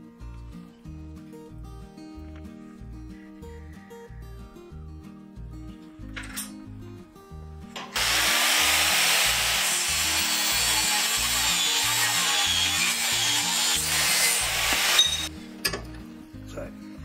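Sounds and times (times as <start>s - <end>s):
angle grinder cutting steel: 7.8s - 15.3s.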